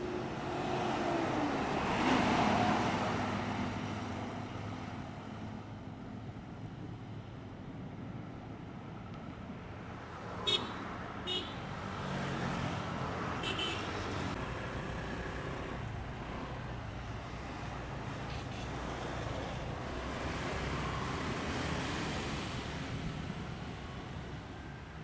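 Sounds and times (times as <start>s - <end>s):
highway traffic rumble: 0.0s - 25.0s
vehicle horn toots: 10.5s - 11.6s, 13.4s - 13.9s.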